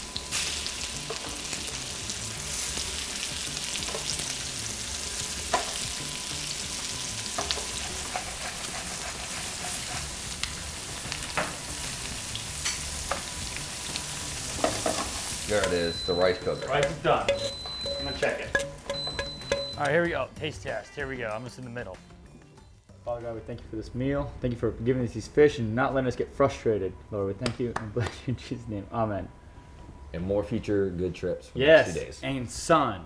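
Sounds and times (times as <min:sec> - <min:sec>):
fish sizzling in hot oil: 0:00.0 - 0:16.6.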